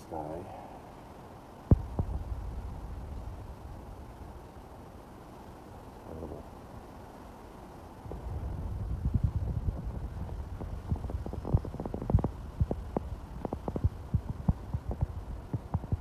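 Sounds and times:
wind buffeting microphone: 1.7s - 4.7s, 8.0s - 16.0s.

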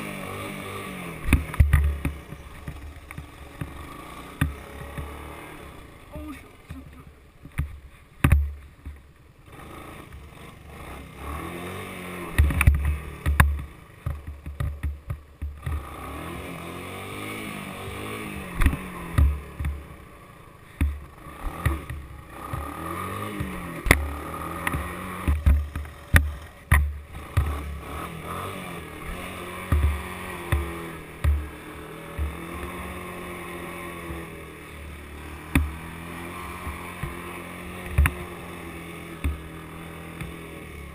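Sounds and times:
engine revving: 0.0s - 7.1s, 9.4s - 40.9s.

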